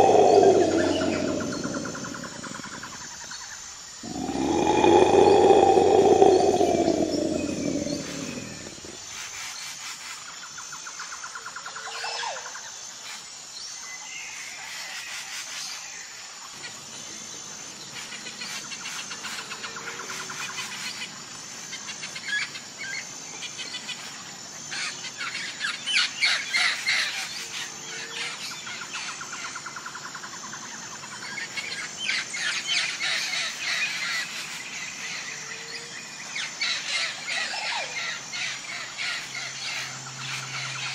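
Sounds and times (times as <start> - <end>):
birds chirping: 0.0 - 2.8, 4.0 - 9.0
rapid harsh bird calls: 0.0 - 2.8, 4.0 - 9.0
tiger roaring: 0.0 - 2.9, 4.0 - 9.0.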